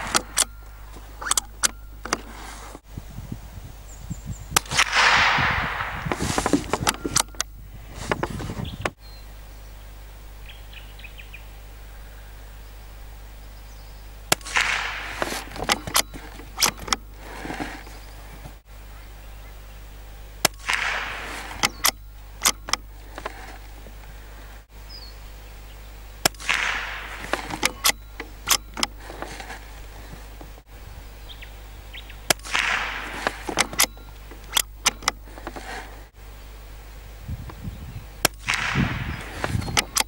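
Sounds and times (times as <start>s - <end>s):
rifle shots: 4.6s - 7.2s, 14.3s - 16.7s, 20.4s - 23.5s, 26.2s - 28.6s, 32.3s - 33.9s.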